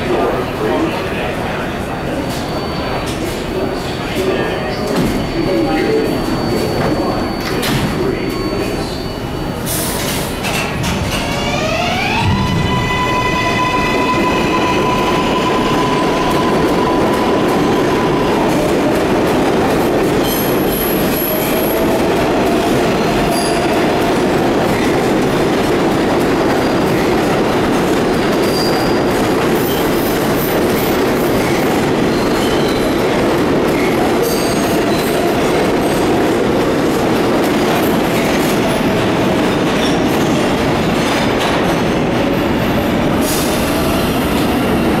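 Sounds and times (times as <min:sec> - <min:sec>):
train wheels rumbling on rails: 0:00.0 - 0:45.0
train whine: 0:11.1 - 0:28.2.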